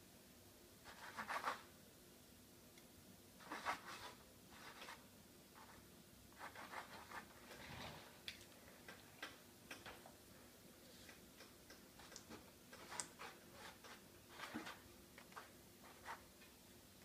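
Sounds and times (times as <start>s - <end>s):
marker writing on a whiteboard: 12.0s - 16.3s.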